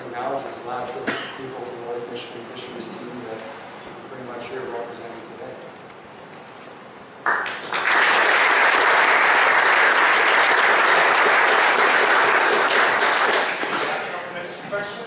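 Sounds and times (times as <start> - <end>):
audience applauding: 7.2 - 14.3.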